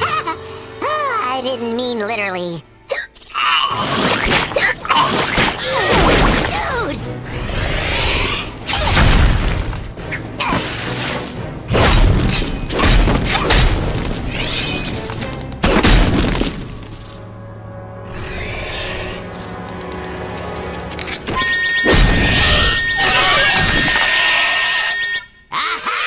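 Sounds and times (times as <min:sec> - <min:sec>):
dramatic background music: 0:00.0 - 0:26.0
booms and crashing impacts: 0:08.8 - 0:09.9.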